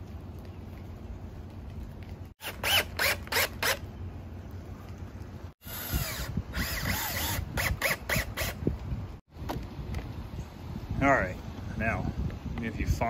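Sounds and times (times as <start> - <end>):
cordless drill driving screws: 2.4 - 3.8, 5.6 - 8.6.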